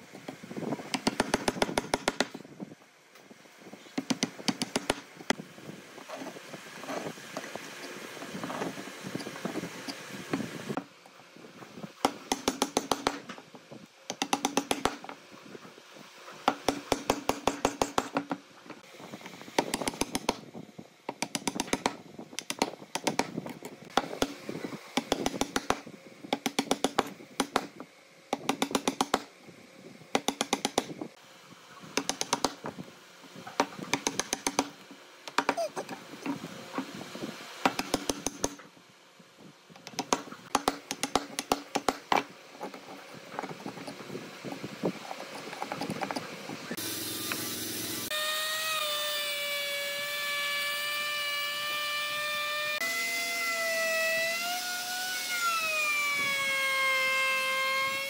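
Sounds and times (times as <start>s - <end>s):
mallet striking chisel: 12.0s - 13.2s, 14.1s - 15.0s.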